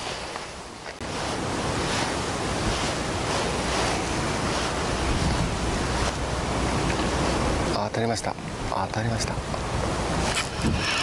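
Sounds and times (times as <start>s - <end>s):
water lapping at quay: 0.0s - 8.7s
wind on microphone: 0.0s - 11.0s.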